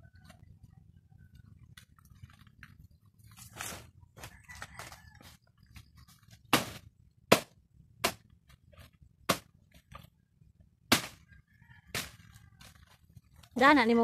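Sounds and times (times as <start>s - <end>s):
machete chopping plant stalks: 6.4s - 8.3s, 9.2s - 9.5s, 10.9s - 11.2s, 11.9s - 12.3s.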